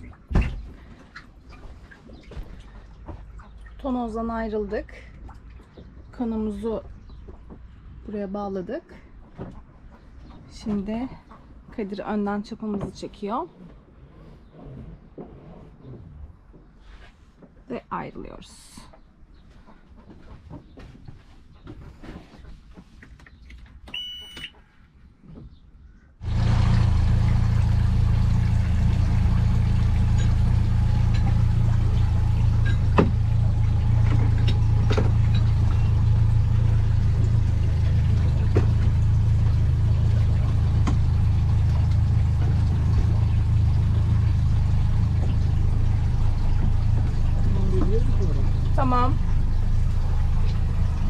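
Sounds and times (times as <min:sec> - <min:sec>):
motorboat engine humming: 0:26.2 - 0:51.0.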